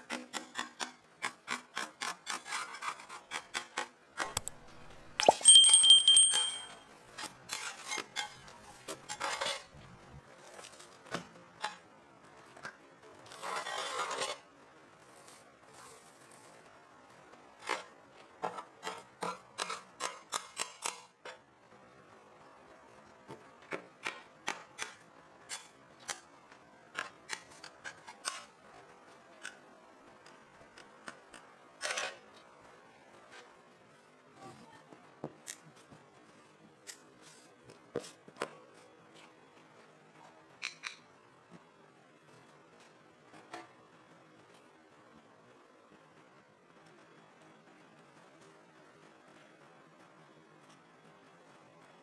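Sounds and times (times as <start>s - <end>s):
light metallic clinks: 5.2s - 6.8s
two-tone bell chime: 5.2s - 6.8s.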